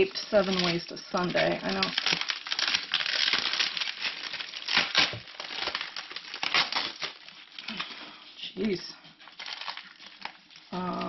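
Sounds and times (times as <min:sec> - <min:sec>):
paper and tape crinkling: 0:00.0 - 0:11.0.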